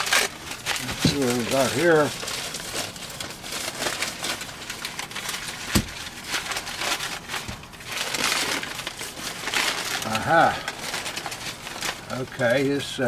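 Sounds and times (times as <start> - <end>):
paper wrapping rustling: 0.0 - 13.0.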